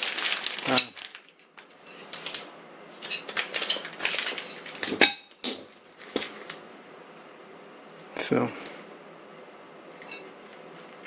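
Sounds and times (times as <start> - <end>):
plastic wrapping rustling: 0.0 - 6.6.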